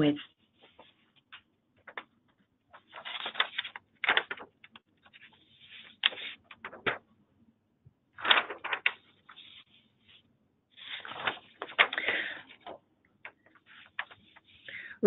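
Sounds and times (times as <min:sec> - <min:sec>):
rustling and sharp clicks: 0:00.6 - 0:07.1, 0:08.2 - 0:09.7, 0:10.8 - 0:14.7.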